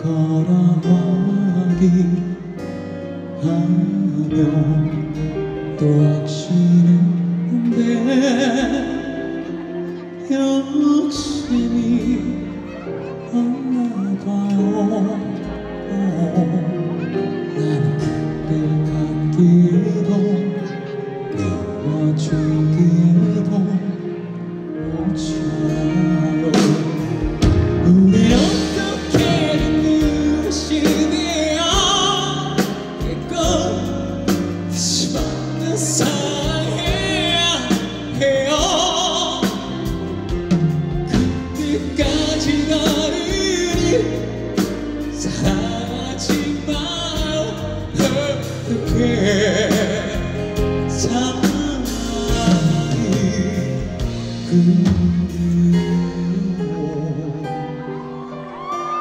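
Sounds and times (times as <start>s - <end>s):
live rock band playing: 0.0s - 59.0s
person singing long notes: 0.0s - 59.0s.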